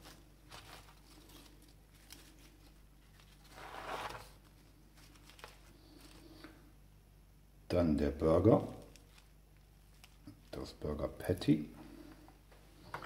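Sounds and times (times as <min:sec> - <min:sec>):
lettuce leaves rustling: 0:00.0 - 0:06.4, 0:08.7 - 0:10.6.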